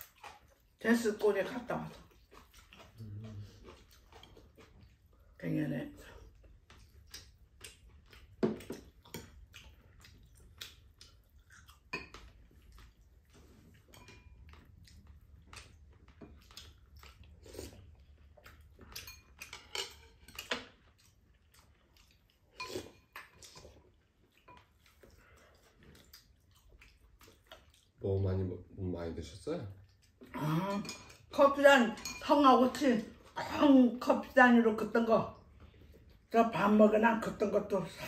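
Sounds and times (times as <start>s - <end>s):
chewing: 0.0s - 0.8s, 1.5s - 28.4s, 29.7s - 31.4s, 35.3s - 36.3s
cutlery clinking on ceramic bowls: 11.9s - 12.3s, 13.8s - 14.6s, 18.8s - 20.7s, 30.6s - 32.9s.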